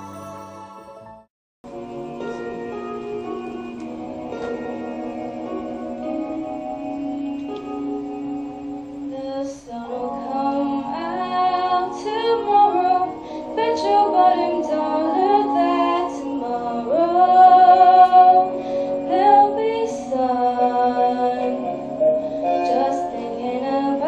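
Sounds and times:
instrumental backing of held chords: 0:00.0 - 0:24.0
woman singing: 0:09.1 - 0:24.0.

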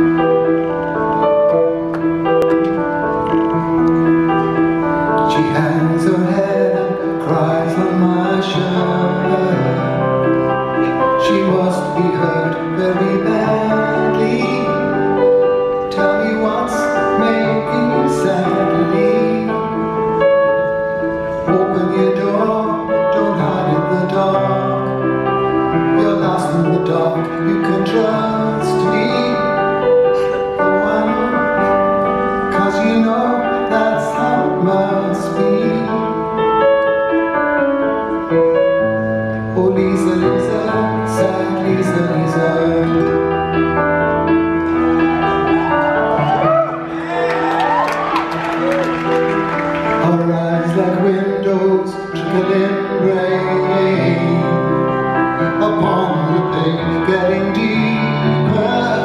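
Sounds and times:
piano ballad: 0:00.0 - 0:59.0
man singing: 0:05.1 - 0:20.4, 0:21.4 - 0:36.8, 0:39.4 - 0:43.9, 0:49.9 - 0:59.0.

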